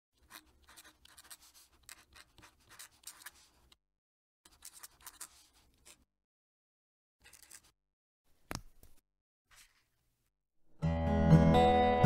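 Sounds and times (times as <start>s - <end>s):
pen nib scratching on paper: 0.2s - 3.8s, 4.5s - 6.1s, 7.2s - 7.7s.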